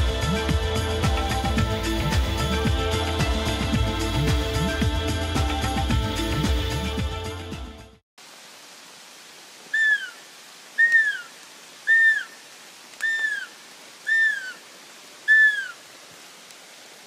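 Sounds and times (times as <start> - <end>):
roe deer whistling calls: 9.7 - 10.2, 10.8 - 11.3, 11.9 - 12.4, 13.0 - 14.6, 15.3 - 15.8.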